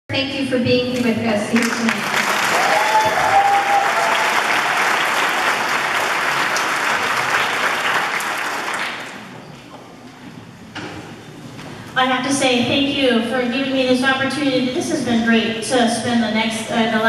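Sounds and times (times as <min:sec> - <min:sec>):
audience applauding: 0:01.6 - 0:09.4.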